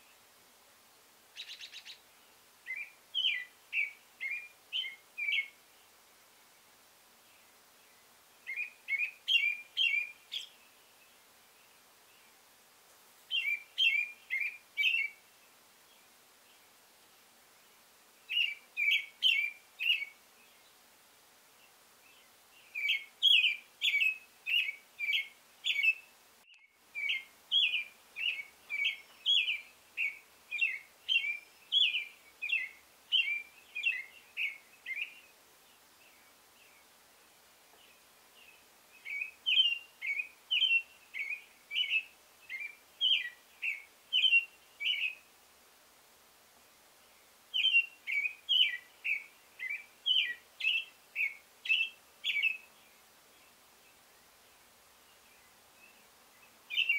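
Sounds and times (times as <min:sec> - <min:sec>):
robin singing whistled phrases: 0:02.7 - 0:05.6, 0:07.9 - 0:10.8, 0:13.3 - 0:15.2, 0:18.3 - 0:20.6, 0:22.1 - 0:35.4, 0:37.9 - 0:45.3, 0:47.5 - 0:53.0, 0:55.3 - 0:56.9.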